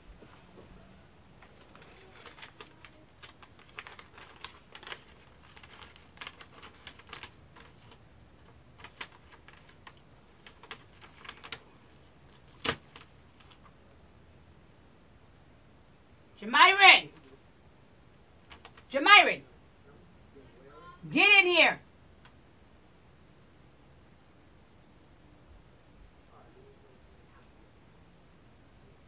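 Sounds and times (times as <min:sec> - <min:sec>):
paper crackling and rustling: 0:01.4 - 0:13.8, 0:18.4 - 0:18.9.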